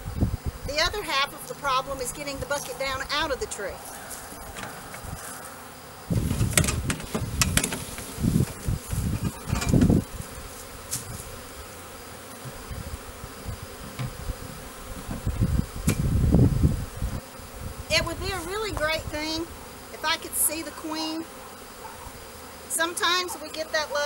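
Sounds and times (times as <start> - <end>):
bees buzzing: 0.0 - 24.0.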